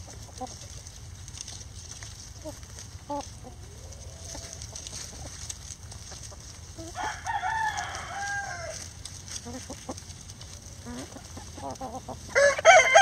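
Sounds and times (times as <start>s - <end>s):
chickens clucking softly: 0.0s - 13.0s
rooster crowing: 6.8s - 8.9s, 12.3s - 13.0s.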